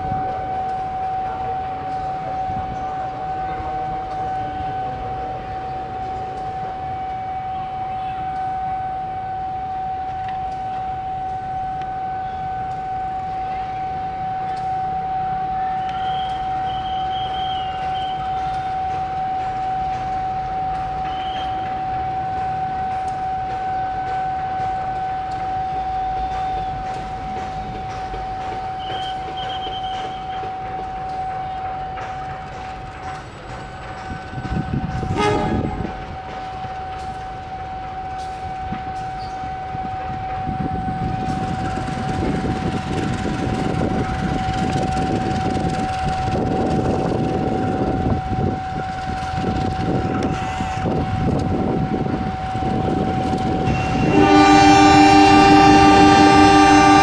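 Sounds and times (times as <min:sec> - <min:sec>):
level crossing alarm tone: 0:00.0 - 0:32.6, 0:34.2 - 0:57.0.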